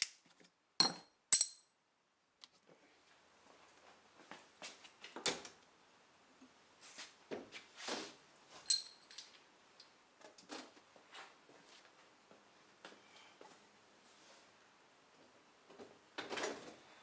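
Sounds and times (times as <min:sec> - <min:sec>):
sharp metallic clink: 0:00.8 - 0:01.7.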